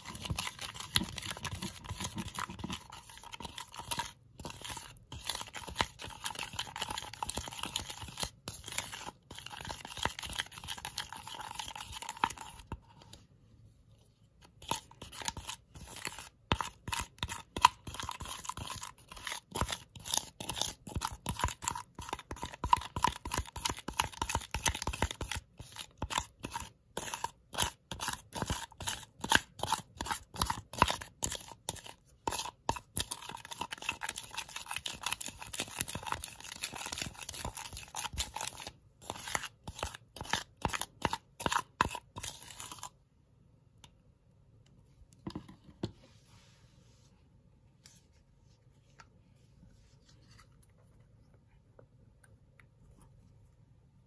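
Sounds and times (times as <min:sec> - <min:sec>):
spoon stirring sticky slime: 0:00.0 - 0:43.1.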